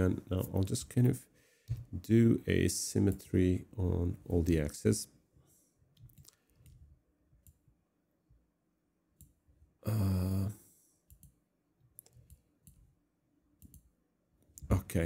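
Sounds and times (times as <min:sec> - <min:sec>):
computer mouse clicks: 0:05.9 - 0:07.7, 0:11.1 - 0:12.9, 0:13.6 - 0:13.9
person humming or sighing: 0:09.8 - 0:10.7.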